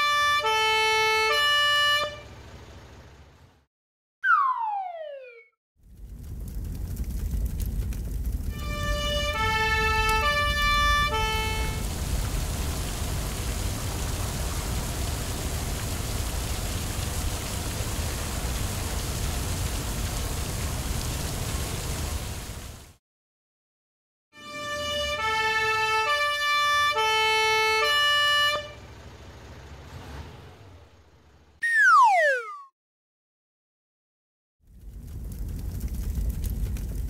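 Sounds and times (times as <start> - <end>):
two-tone fire engine siren: 0.0 - 2.4, 4.2 - 5.5, 8.5 - 12.0, 24.4 - 28.9, 31.6 - 32.7
water spraying from hose: 8.6 - 23.0.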